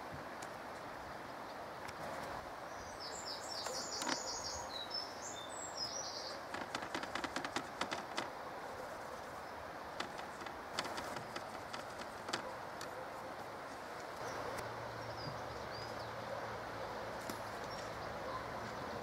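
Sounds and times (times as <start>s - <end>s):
steady outdoor hiss: 0.0s - 19.0s
songbird chirping: 2.6s - 19.0s
light clicks and taps: 6.5s - 8.3s, 10.0s - 13.0s.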